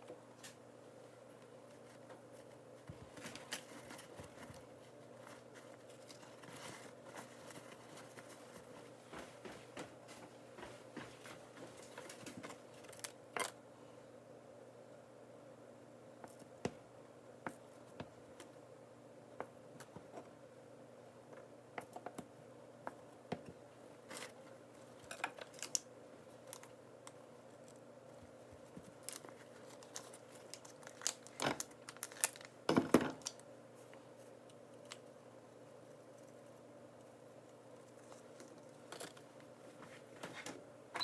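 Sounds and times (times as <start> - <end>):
rustling: 0.4 - 13.6, 23.9 - 32.5.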